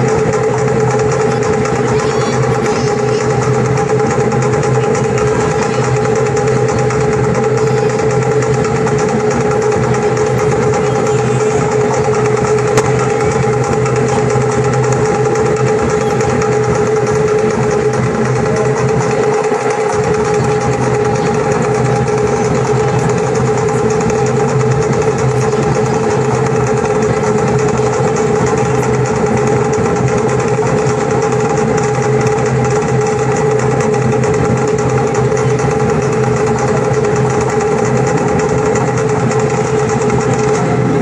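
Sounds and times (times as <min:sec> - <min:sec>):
fast slit-log drumming: 0:00.0 - 0:41.0.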